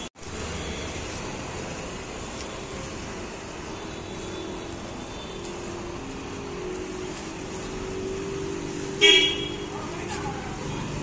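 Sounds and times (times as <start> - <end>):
bus engine hum with road noise: 0.0 - 11.0
vehicle horn honk: 9.0 - 9.7.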